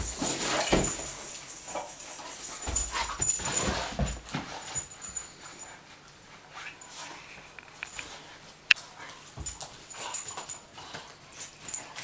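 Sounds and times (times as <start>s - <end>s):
dog thudding and scuffling on carpet: 0.0s - 5.3s.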